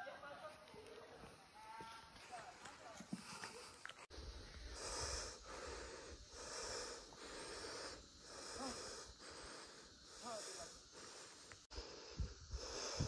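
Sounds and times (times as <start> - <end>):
person breathing hard: 3.2 - 13.0.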